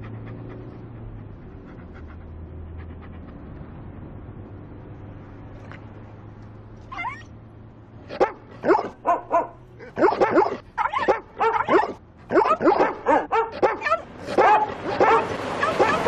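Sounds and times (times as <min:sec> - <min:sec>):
dog barking and yipping: 0:06.9 - 0:07.3, 0:08.0 - 0:16.0.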